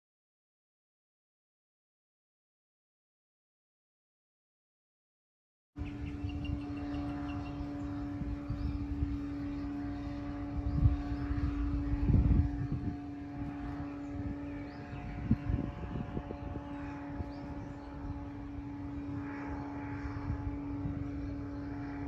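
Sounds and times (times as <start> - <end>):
distant engine drone: 5.8 - 22.0
wind rumbling on microphone: 5.8 - 22.0.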